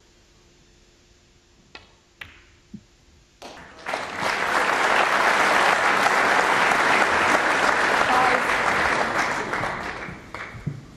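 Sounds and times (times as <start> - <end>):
crowd applause: 3.4 - 10.7.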